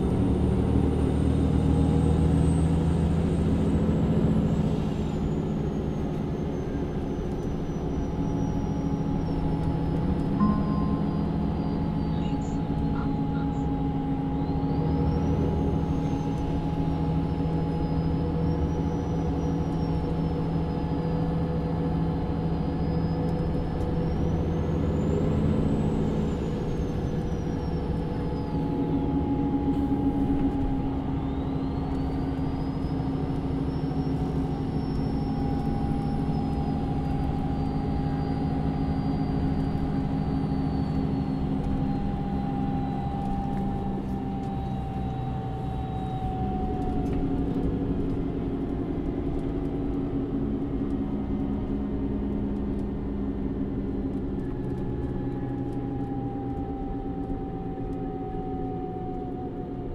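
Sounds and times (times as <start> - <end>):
bus engine running: 0.0 - 59.9
high whine of bus: 0.0 - 59.9.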